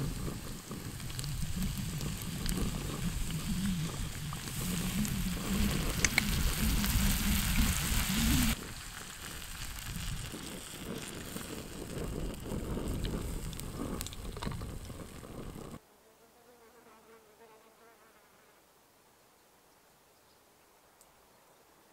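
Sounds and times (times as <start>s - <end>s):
camping stove roar: 0.0s - 15.8s
food sizzling in a pan: 0.0s - 15.8s.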